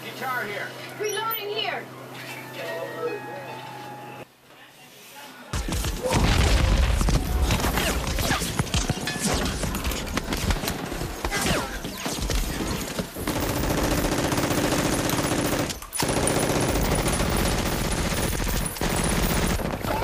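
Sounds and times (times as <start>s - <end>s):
rapid gunfire: 5.6s - 20.0s.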